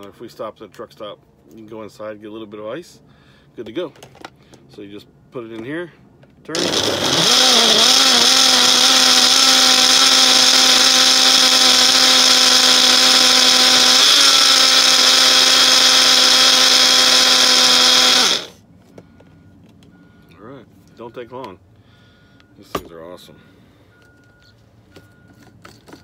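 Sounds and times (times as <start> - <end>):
blender motor whine: 6.5 - 18.6.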